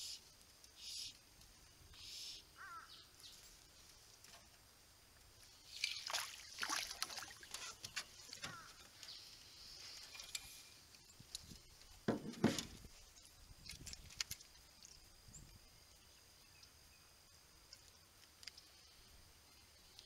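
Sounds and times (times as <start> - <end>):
fish splashing: 5.6 - 8.7
clicks and rustles of handling: 9.8 - 15.0
thump: 12.1 - 12.8.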